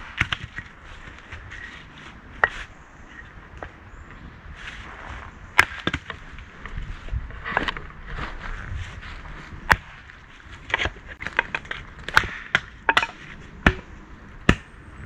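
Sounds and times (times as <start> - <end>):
hatchet chopping kindling: 5.6 - 6.2, 9.6 - 13.9, 14.5 - 14.8.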